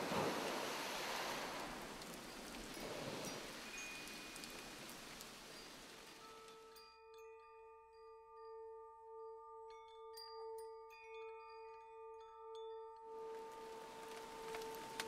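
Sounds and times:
soft hiss: 0.0 - 6.8, 13.2 - 15.0
chime-like notes: 2.3 - 4.8, 5.6 - 15.0.

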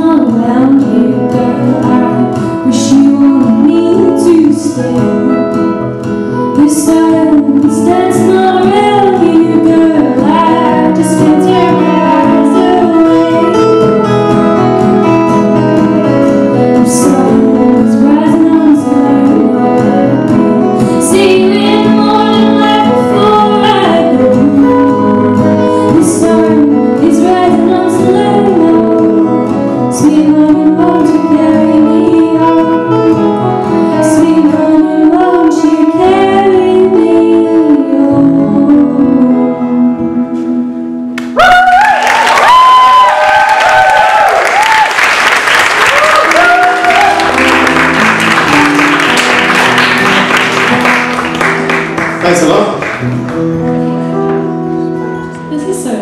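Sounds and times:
woman singing: 0.0 - 14.7, 16.5 - 40.6, 55.5 - 56.0
acoustic guitar: 0.0 - 56.0.

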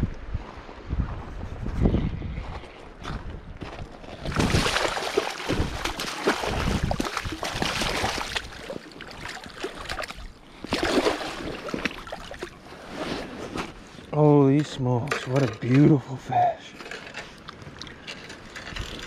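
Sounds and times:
boots wading through water: 3.7 - 13.3
water splashing: 4.1 - 13.0.

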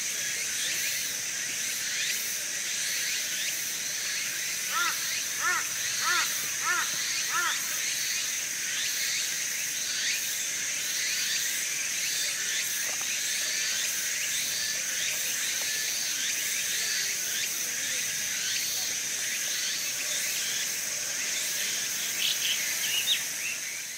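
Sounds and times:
high-pitched insect drone: 0.0 - 23.9
rising-and-falling insect call: 0.1 - 23.9.

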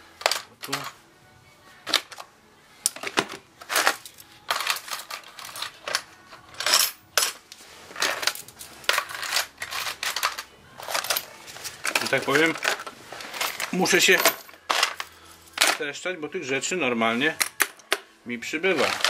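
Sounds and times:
hand tools clattering in plastic toolbox: 2.9 - 15.9, 18.8 - 19.0.

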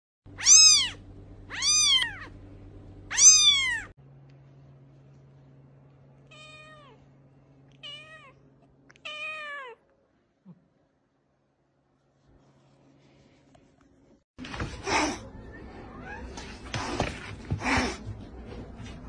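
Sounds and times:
cat meowing low: 0.4 - 2.3
kitten meowing: 0.4 - 2.3, 3.1 - 3.9.

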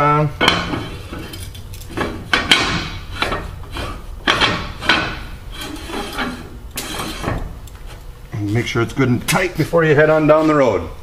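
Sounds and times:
metal scraping on threads: 0.4 - 8.6.

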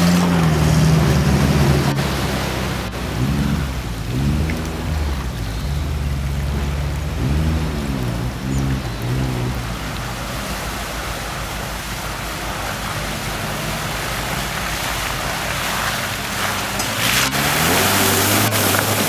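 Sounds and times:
car engine revving: 0.0 - 19.0
mud and water splashing: 0.0 - 19.0.

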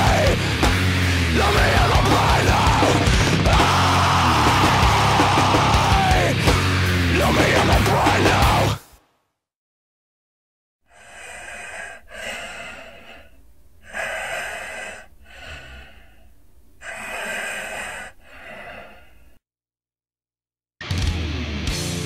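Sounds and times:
heavy breathing: 10.8 - 19.4.

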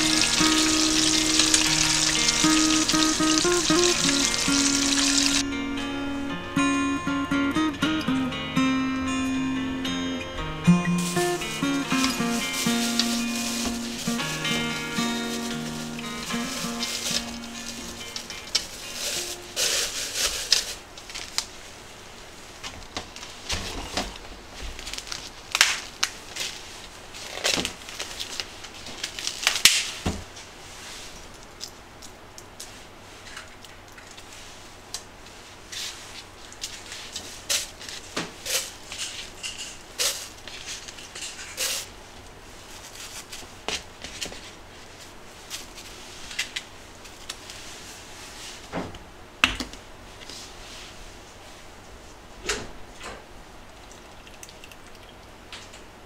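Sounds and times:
plastic bag crinkling: 0.0 - 5.4, 11.0 - 21.9, 23.0 - 30.0.

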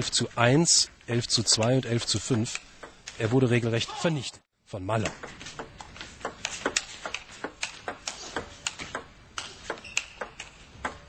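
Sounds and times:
table tennis ball clicking: 5.1 - 11.0.

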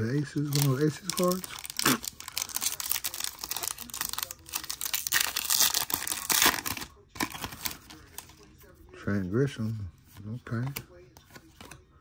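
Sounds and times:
foil wrapper crinkling and tearing: 0.4 - 8.3.

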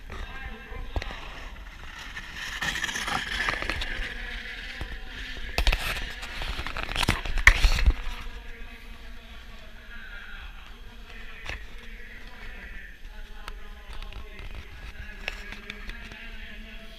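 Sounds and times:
scraping on ice: 0.1 - 8.3.

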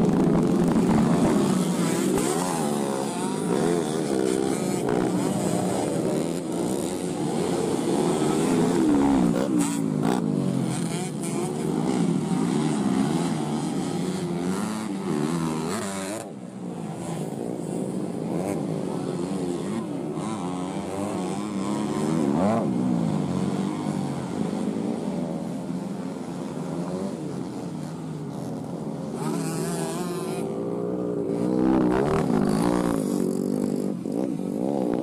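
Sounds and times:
dirt bike engines revving: 0.0 - 35.0.

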